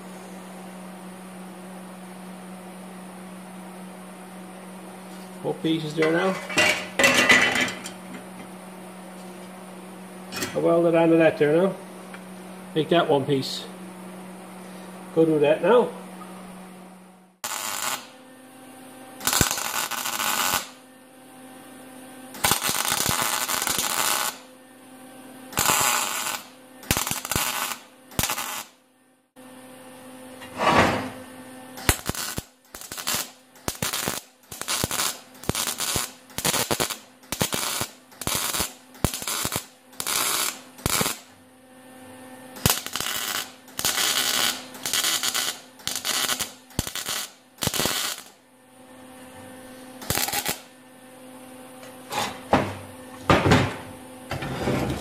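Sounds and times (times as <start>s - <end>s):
wire-feed welder welding: 5.4s - 8.2s, 17.4s - 18.2s, 19.2s - 20.8s, 22.3s - 24.5s, 25.5s - 28.8s, 31.8s - 41.4s, 42.5s - 48.4s, 49.9s - 50.8s.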